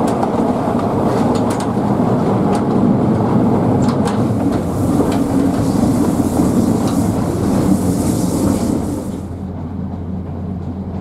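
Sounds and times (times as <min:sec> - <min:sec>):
train wheel clicks: 0:00.0 - 0:09.6
train carriage rumbling on rails: 0:00.0 - 0:11.0
high rushing hiss: 0:04.2 - 0:09.4.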